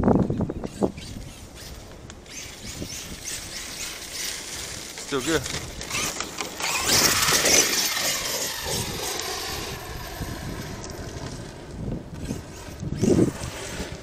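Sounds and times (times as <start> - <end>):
electric motor whining: 0.4 - 14.0.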